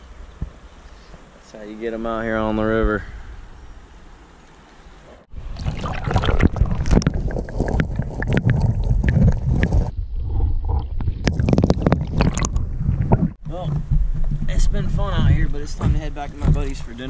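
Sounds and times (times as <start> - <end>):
muffled underwater water rumbling: 5.3 - 17.0.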